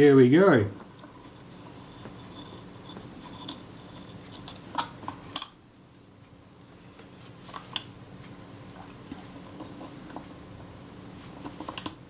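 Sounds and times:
faint steady hum: 0.0 - 12.0
small clicks and scrapes: 0.8 - 12.0.

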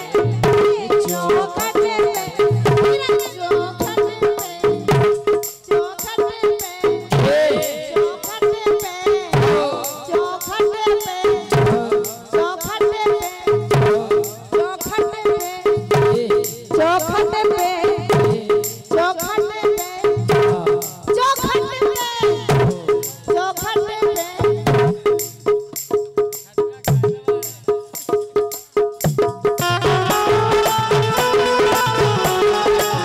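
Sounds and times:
harmonium melody: 0.0 - 7.1, 29.5 - 33.0
dholak drum fast rhythm: 0.0 - 33.0
jingle rattle shaken: 25.0 - 33.0.

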